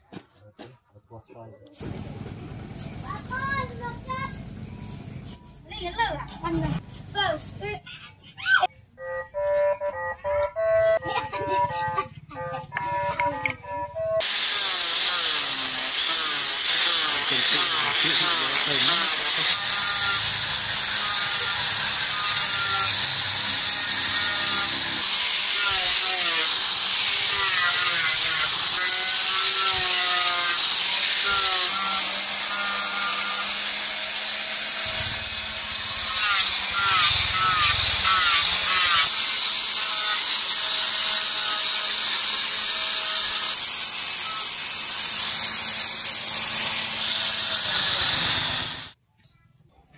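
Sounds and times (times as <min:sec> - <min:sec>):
angle grinder whining: 0:01.8 - 0:05.4, 0:10.8 - 0:49.0
sanding disc scraping wood: 0:14.2 - 0:49.0.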